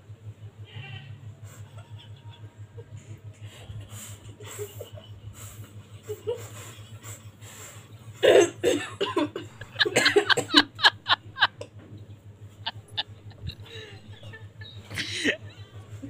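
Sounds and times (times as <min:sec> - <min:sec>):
girl laughing: 0:01.5 - 0:02.9, 0:03.6 - 0:07.4, 0:08.2 - 0:11.7, 0:12.6 - 0:16.0.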